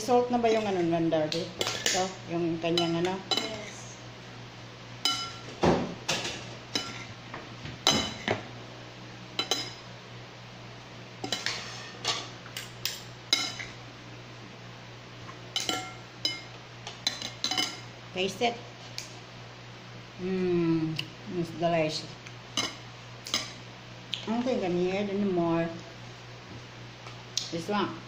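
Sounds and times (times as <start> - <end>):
metal spoons clinking on glass bowl: 15.6 - 17.8.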